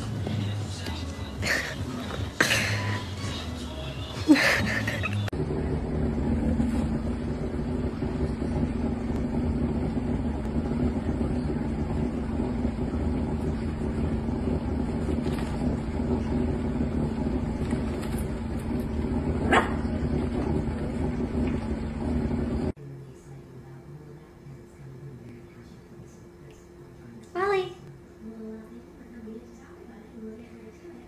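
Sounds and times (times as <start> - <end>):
low machine hum: 0.0 - 31.0.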